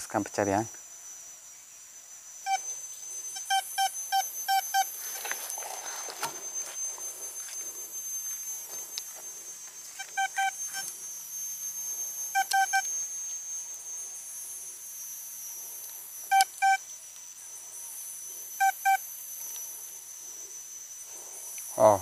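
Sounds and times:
metal detector beeps: 2.5s - 14.2s, 16.2s - 16.9s, 18.6s - 19.7s.

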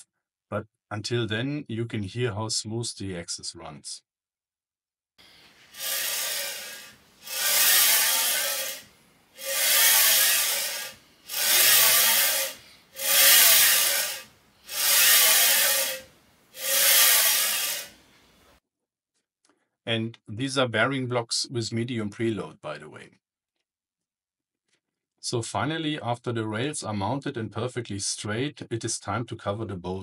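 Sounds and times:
bearing blocks rolling on rails: 5.7s - 18.0s.

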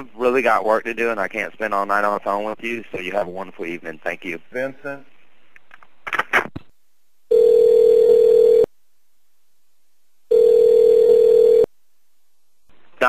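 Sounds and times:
telephone ringback tone: 7.3s - 8.7s, 10.3s - 11.7s.

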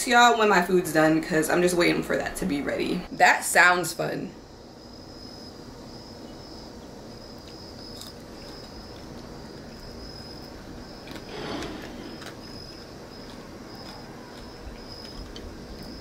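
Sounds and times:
insects chirping: 0.1s - 16.0s.

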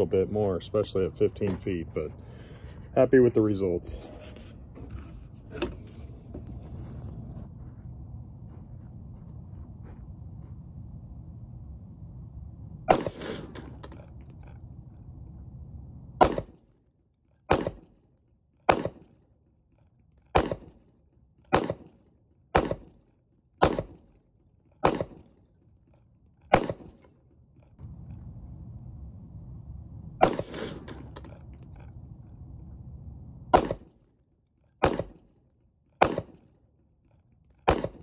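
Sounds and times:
pistol shots: 12.9s - 13.5s, 16.2s - 16.6s, 17.5s - 18.0s, 18.7s - 19.2s, 20.3s - 20.8s, 21.5s - 23.0s, 23.6s - 24.1s, 24.8s - 25.3s, 26.5s - 27.0s, 30.2s - 30.9s, 33.5s - 33.9s, 34.8s - 35.2s, 36.0s - 36.5s, 37.6s - 38.0s.

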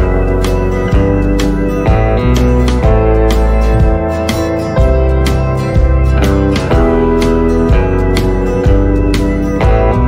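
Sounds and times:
background music with chords: 0.0s - 10.0s.

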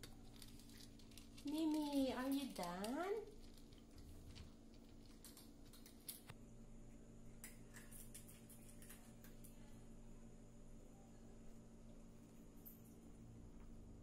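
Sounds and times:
cat chewing dry kibble: 0.0s - 6.3s
low steady hum: 0.0s - 14.0s.

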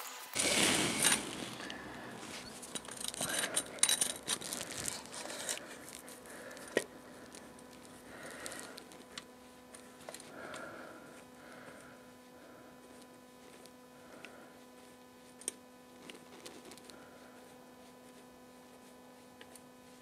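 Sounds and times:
jack screw scraping: 0.4s - 5.7s
scrapes rustles and clicks of jack: 0.4s - 6.8s.

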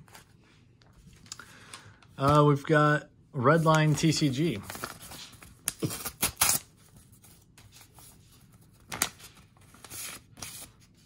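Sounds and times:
paper envelope ripping: 3.6s - 10.9s.

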